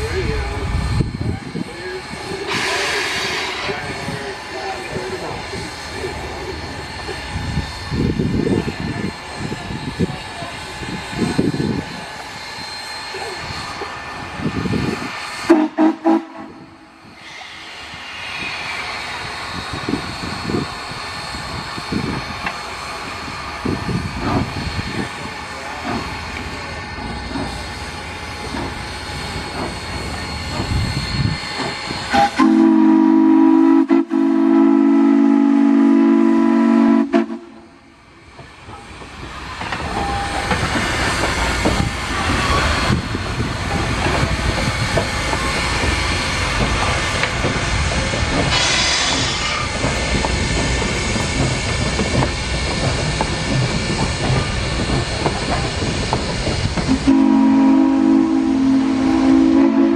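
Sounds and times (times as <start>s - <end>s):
train rumble and hiss: 0.0s - 59.9s
locomotive horn blast: 15.5s - 16.6s, 32.1s - 37.8s, 57.0s - 59.9s.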